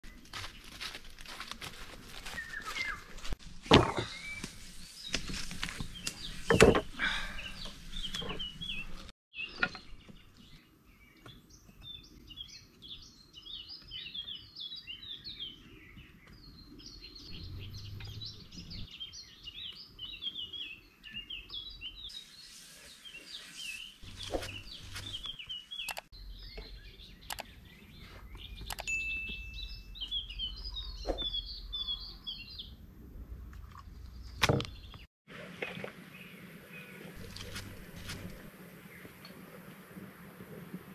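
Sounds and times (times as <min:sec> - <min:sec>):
small birds chirping: 0:02.2 - 0:03.4, 0:04.0 - 0:32.8, 0:34.0 - 0:35.1.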